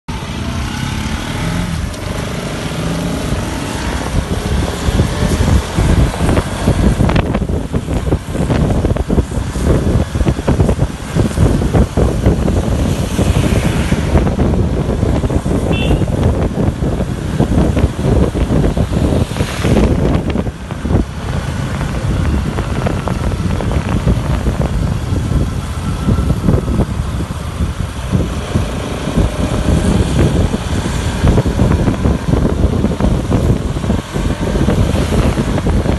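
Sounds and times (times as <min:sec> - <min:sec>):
wind buffeting microphone: 0:00.1 - 0:35.9.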